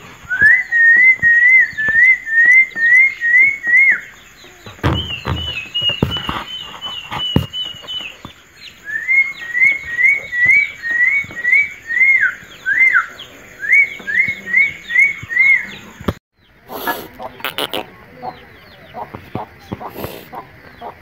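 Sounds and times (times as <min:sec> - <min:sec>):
bird whistling repeated notes: 0:00.1 - 0:16.2.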